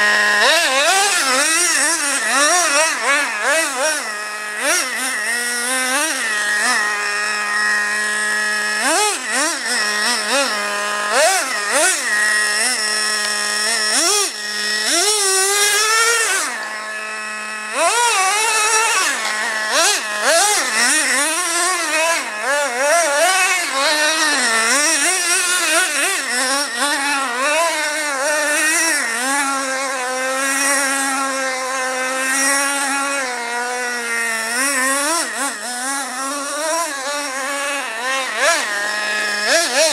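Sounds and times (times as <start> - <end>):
model car engine revving: 0.0 - 39.9.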